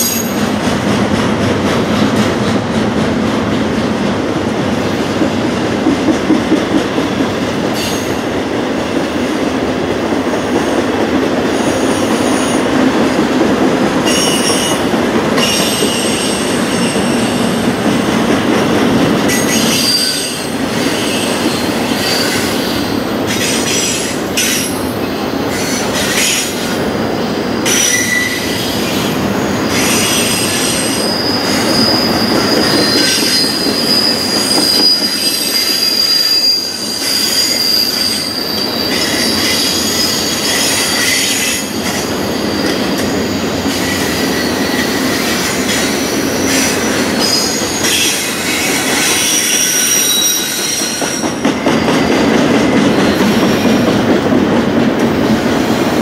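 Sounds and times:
train wheels rumbling over rails: 0:00.0 - 0:56.0
high-pitched wheel squeals: 0:27.7 - 0:28.7, 0:29.8 - 0:42.9, 0:46.5 - 0:51.2.

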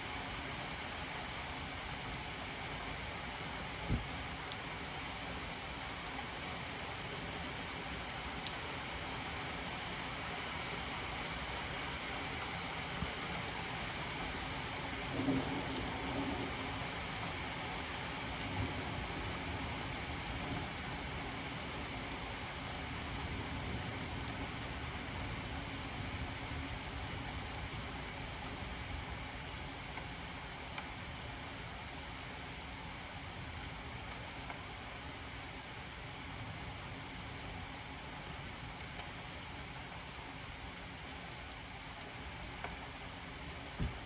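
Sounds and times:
heavy rain: 0:00.0 - 0:44.0.

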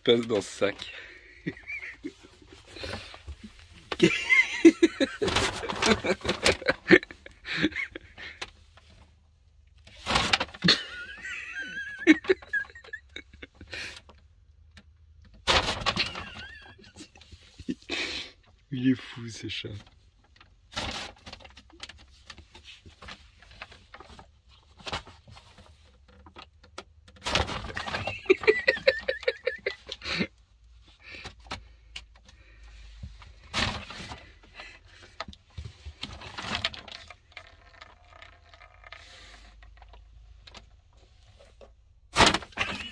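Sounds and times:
bag crinkling and rustling: 0:35.9 - 0:40.0.

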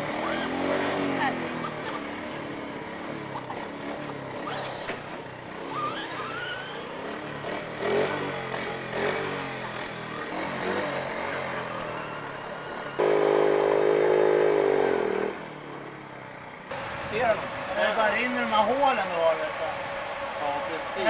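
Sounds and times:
quad bike engine revving: 0:00.0 - 0:21.0.

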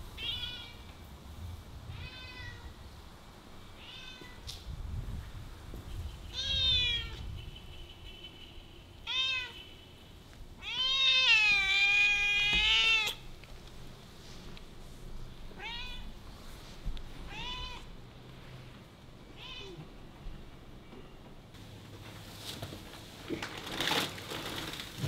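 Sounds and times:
cat meowing: 0:01.9 - 0:02.7, 0:06.3 - 0:07.2, 0:09.0 - 0:09.6, 0:10.6 - 0:13.3, 0:15.5 - 0:16.1, 0:17.3 - 0:17.9, 0:19.4 - 0:19.9.

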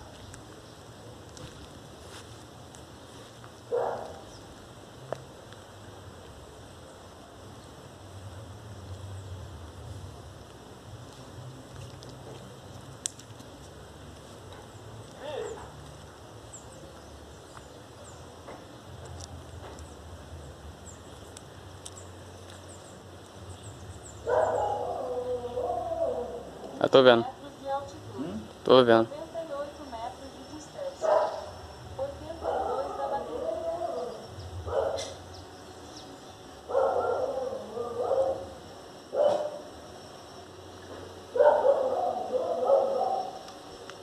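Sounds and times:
dog howling: 0:24.3 - 0:26.8, 0:32.4 - 0:35.2, 0:36.7 - 0:39.7, 0:41.4 - 0:43.4.

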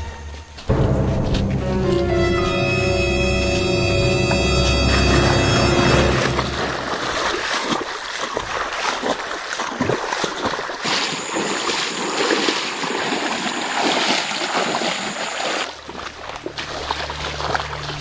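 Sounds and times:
water splashing and sloshing: 0:00.2 - 0:18.0
high-pitched whine: 0:02.2 - 0:07.1.

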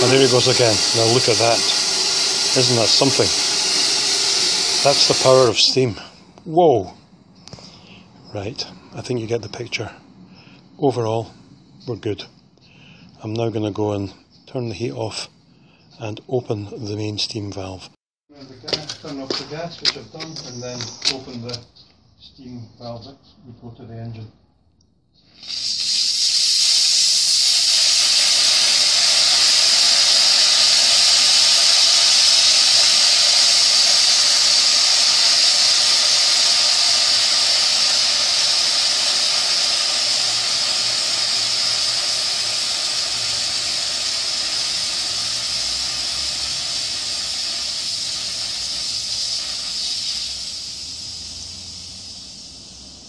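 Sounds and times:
steam hissing from a valve: 0:00.0 - 0:06.1, 0:25.3 - 0:53.0.

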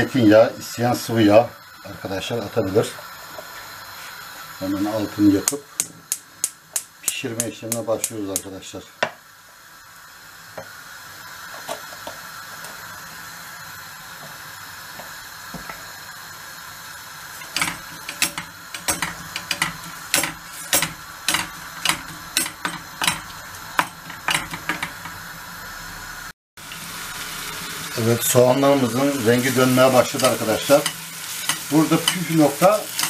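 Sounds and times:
onion frying in oil: 0:00.0 - 0:33.0
wooden spoon knocking pan: 0:17.5 - 0:25.2.

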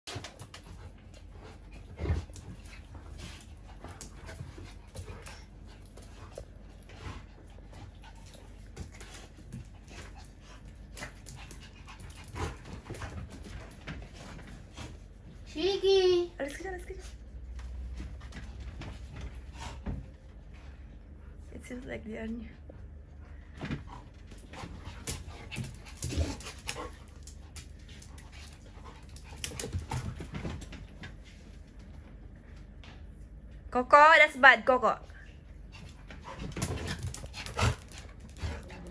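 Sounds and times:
dogs panting: 0:00.1 - 0:21.6, 0:22.5 - 0:31.8, 0:35.3 - 0:38.9
dogs scuffling: 0:23.4 - 0:33.1, 0:35.6 - 0:38.9.

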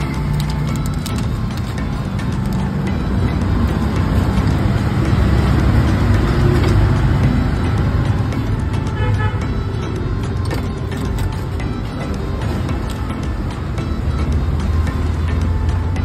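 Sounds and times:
road traffic rumble: 0:00.0 - 0:16.0
vehicle horn tooting: 0:08.8 - 0:09.8.

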